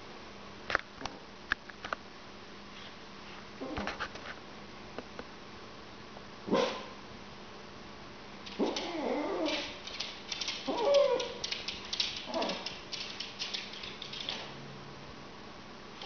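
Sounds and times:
small dog barking angrily: 6.5 - 7.0, 8.5 - 9.8, 10.4 - 11.6, 12.2 - 12.8
dog claws clicking on hardwood floor: 8.5 - 14.5.

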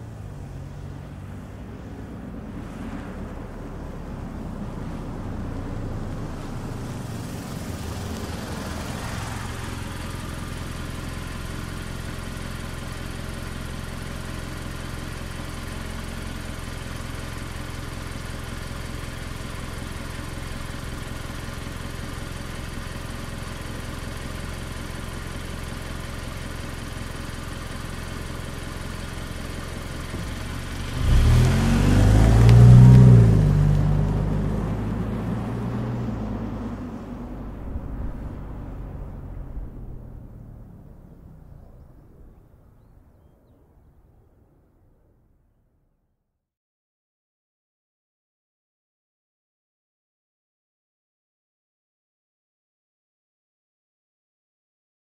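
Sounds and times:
car engine idling: 3.3 - 45.6.

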